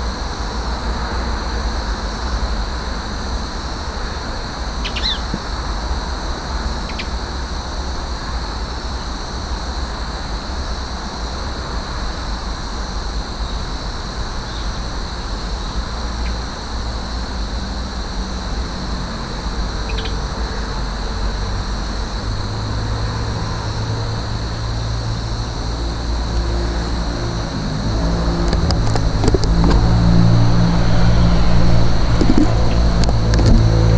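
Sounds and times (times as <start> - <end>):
high chirps: 4.8 - 5.3.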